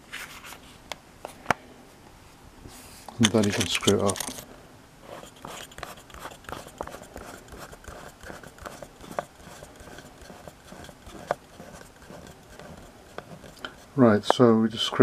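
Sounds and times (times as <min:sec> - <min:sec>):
screwdriver clicking into plastic: 0:03.2 - 0:04.4.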